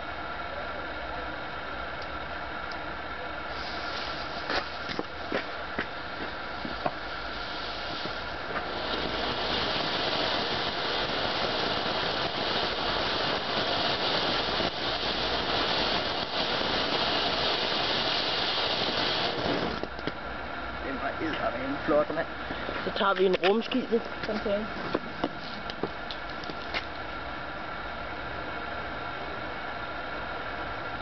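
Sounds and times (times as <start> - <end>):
firework fountain hissing: 0.0 - 31.0
sparks crackling: 3.5 - 27.3.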